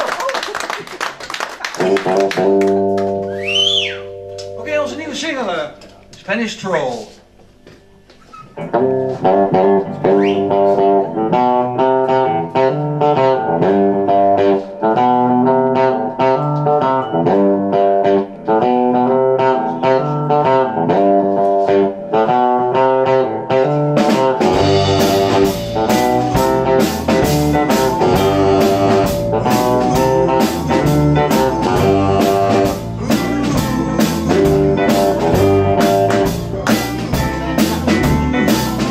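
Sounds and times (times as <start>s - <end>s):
electric guitar picked riff: 1.7s - 6.2s, 7.8s - 38.9s
swing band playing: 1.8s - 7.4s, 8.5s - 38.9s
double bass: 16.4s - 38.9s
drums with cymbal beat: 24.0s - 38.9s.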